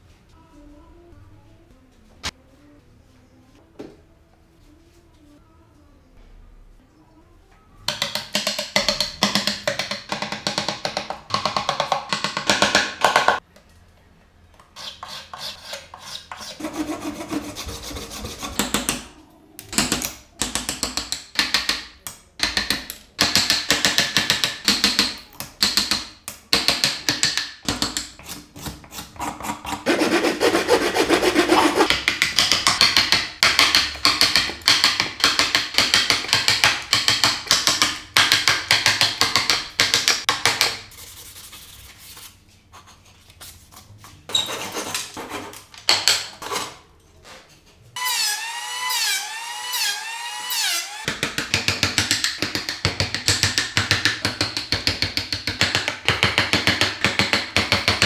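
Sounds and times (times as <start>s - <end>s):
mallet tapping chisel: 7.9s - 13.4s, 51.1s - 58.0s
chisel scraping wood: 14.8s - 18.9s.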